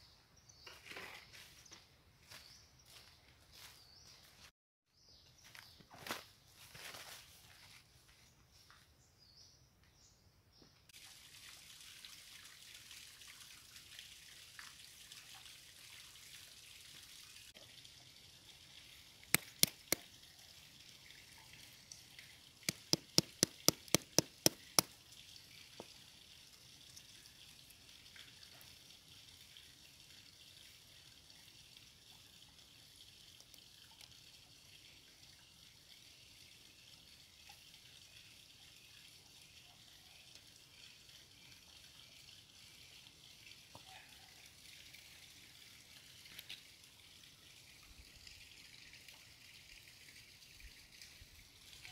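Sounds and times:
rushing water: 0:11.0 - 0:29.6
stone knocking on snail shells: 0:19.3 - 0:20.0, 0:22.7 - 0:24.9.

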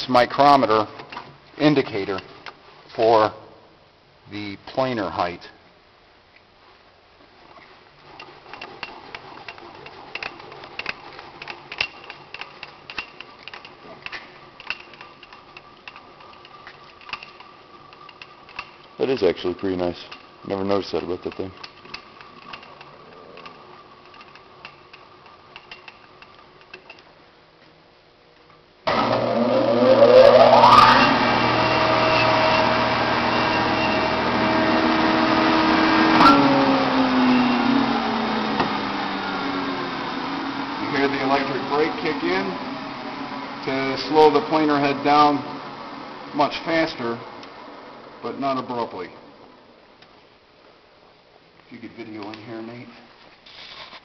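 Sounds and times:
faint high whine: 0:27.8 - 0:54.0.

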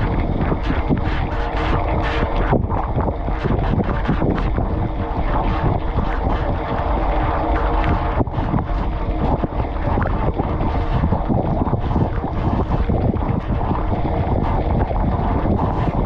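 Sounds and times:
faint hum: 0:00.0 - 0:16.0
water jets spraying in dishwasher: 0:00.0 - 0:16.0.

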